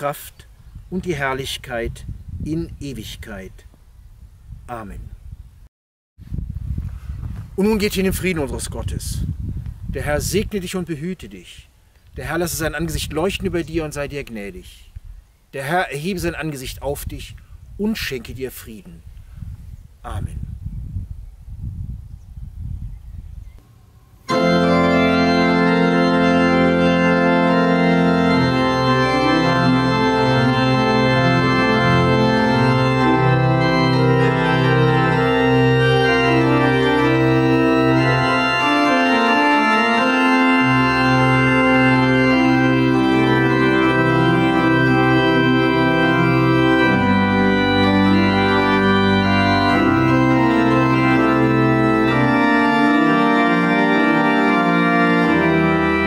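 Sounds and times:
pipe organ chords: 0.0 - 3.4, 23.6 - 56.0
organ pedal bass notes: 0.0 - 3.6, 7.2 - 9.3, 10.0 - 11.3, 12.2 - 14.6, 22.6 - 56.0.

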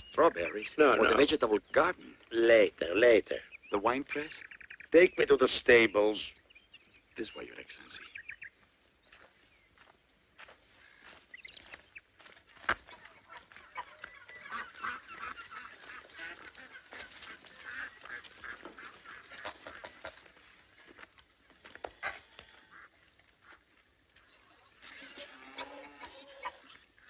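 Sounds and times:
geese honking: 12.8 - 20.8, 21.9 - 27.0.

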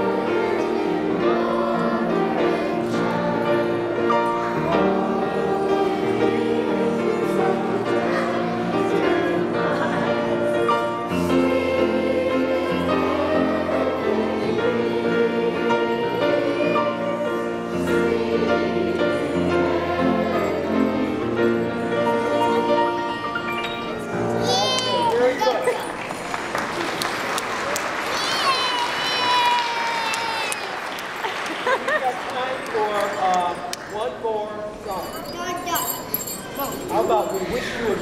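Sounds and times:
children singing a carol: 0.0 - 23.4
held accompanying notes: 0.0 - 25.9.

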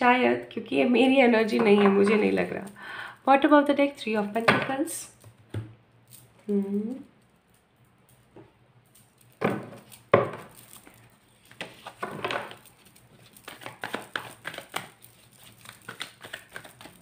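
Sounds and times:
cards being shuffled: 9.2 - 17.0.

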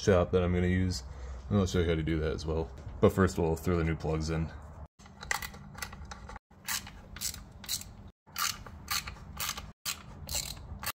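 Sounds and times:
socket ratchet clicking: 6.7 - 10.9.

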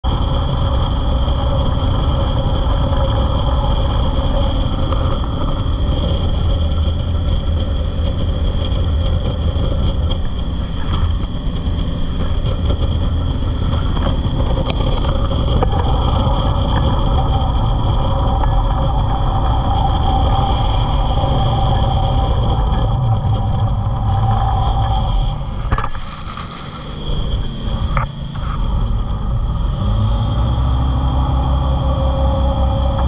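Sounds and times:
boat engine droning: 0.1 - 33.0
wind rushing: 22.4 - 27.7
water spray: 25.8 - 27.1.

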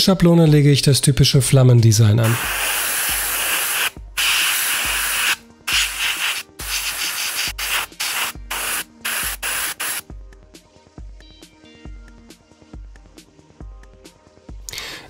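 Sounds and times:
soft background music with beat: 1.8 - 15.0
airbrush spraying hiss: 2.2 - 10.0.

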